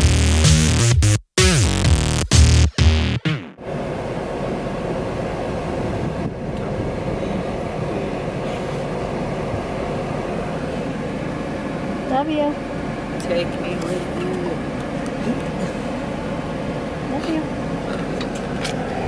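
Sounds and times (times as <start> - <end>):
car rumble: 3.6 - 19.0
road noise: 3.6 - 19.0.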